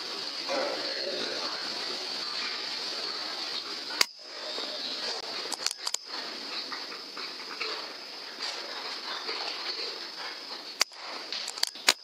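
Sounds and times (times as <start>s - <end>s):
steady high-pitched hiss: 0.0s - 12.0s
quick clicks: 5.5s - 6.1s, 10.8s - 12.0s.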